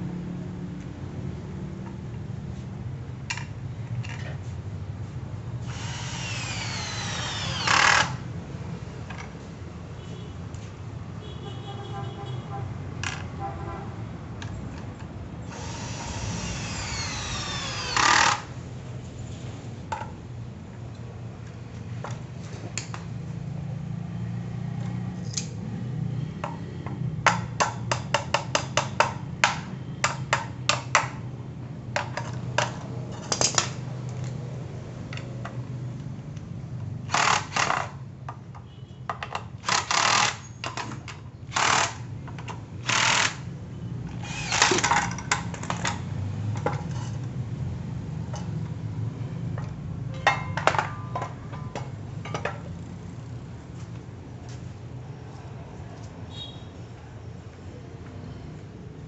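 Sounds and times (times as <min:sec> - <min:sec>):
cordless drill driving fasteners: 0:05.6 - 0:08.3, 0:15.5 - 0:18.6, 0:37.0 - 0:38.0, 0:39.6 - 0:42.1, 0:42.8 - 0:43.5, 0:44.1 - 0:46.0.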